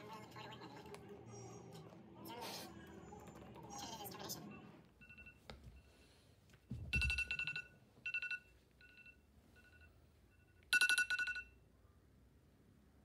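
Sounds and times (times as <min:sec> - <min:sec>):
phone alarm beeping: 0:04.5 - 0:06.1, 0:06.9 - 0:11.6.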